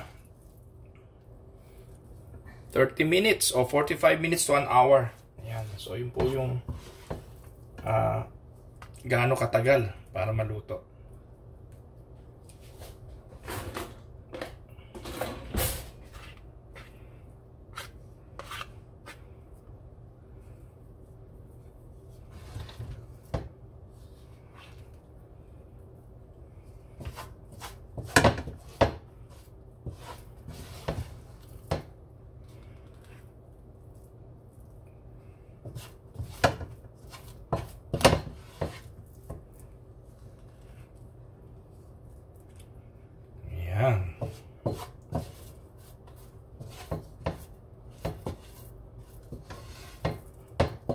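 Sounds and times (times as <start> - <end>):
spatula and spoon scraping: 3.4 - 7.9, 15.0 - 19.4, 26.6 - 31.9, 35.6 - 41.0, 44.2 - 50.9.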